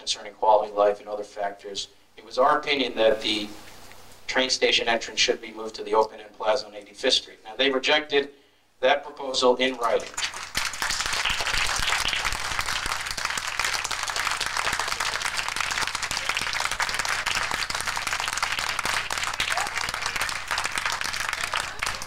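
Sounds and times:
audience applauding: 0:10.0 - 0:22.0.

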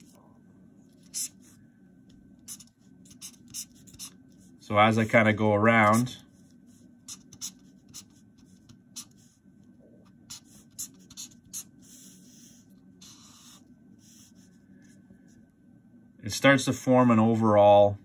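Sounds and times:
marker scratching on paper: 0:00.9 - 0:01.6, 0:02.4 - 0:04.6, 0:05.8 - 0:09.4, 0:10.1 - 0:15.0.

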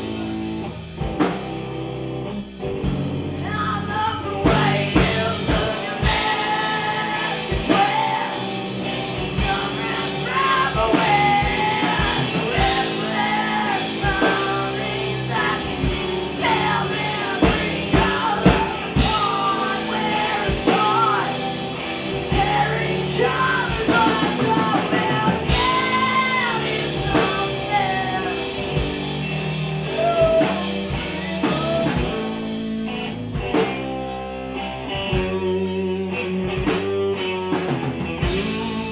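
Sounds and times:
drum kit: 0:00.0 - 0:38.9
electric bass: 0:00.0 - 0:38.9
electric guitar: 0:00.0 - 0:38.9
lead singer's voice: 0:03.4 - 0:33.1.

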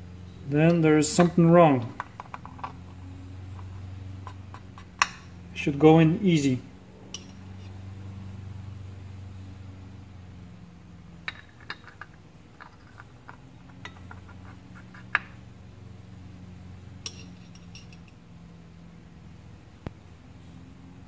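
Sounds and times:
steady low hum: 0:00.0 - 0:21.0
light metallic clicks and clinks: 0:07.1 - 0:07.8, 0:17.0 - 0:18.2.

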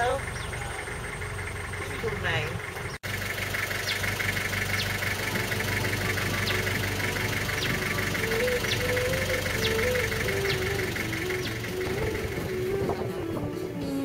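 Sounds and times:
vehicle engine idling: 0:00.0 - 0:14.0
fast pulsing buzz: 0:03.8 - 0:13.2
faint melody of held notes: 0:05.0 - 0:14.0.

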